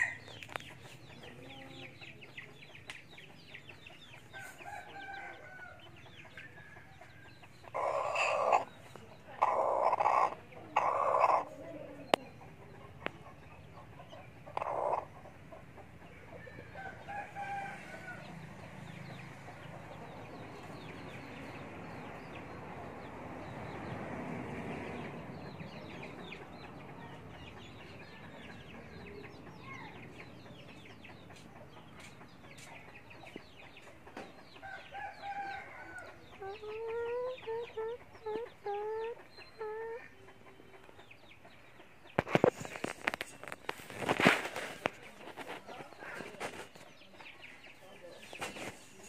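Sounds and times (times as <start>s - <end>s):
rooster clucking: 7.3s - 17.7s, 25.9s - 46.9s.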